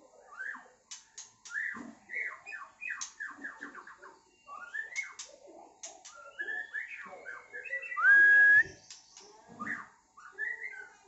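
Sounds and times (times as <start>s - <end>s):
bird singing whistles and clicks: 0.4s - 3.8s, 4.5s - 7.0s, 7.8s - 10.7s.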